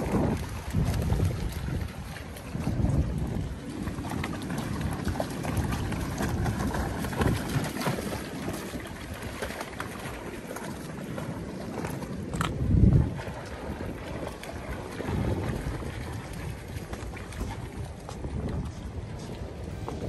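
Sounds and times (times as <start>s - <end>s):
dogs splashing in water: 0.0s - 19.8s
sea water washing among rocks: 0.0s - 20.0s
wind buffeting microphone: 0.0s - 20.0s.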